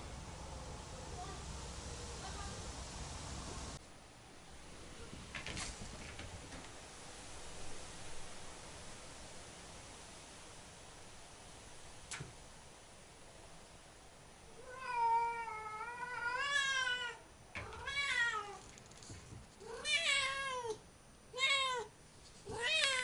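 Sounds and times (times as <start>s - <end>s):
cat meowing loudly: 14.6s - 18.6s, 19.6s - 21.9s, 22.5s - 23.0s.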